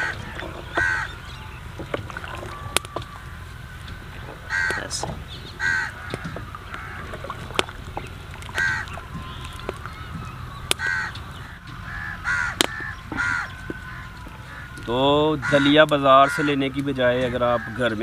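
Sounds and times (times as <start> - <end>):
crow cawing: 0.0 - 1.2, 4.5 - 7.2, 8.5 - 9.0, 10.8 - 18.0.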